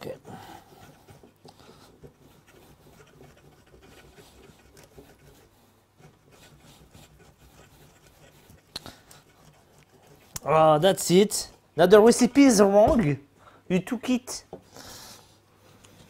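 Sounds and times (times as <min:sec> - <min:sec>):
cheese grating on metal grater: 0:00.0 - 0:11.6.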